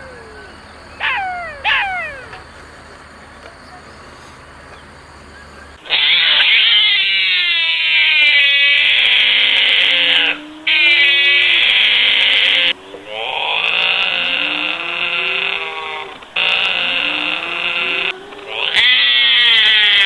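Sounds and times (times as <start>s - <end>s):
animal calling with sliding pitch: 0.0s - 2.6s, 5.8s - 20.0s.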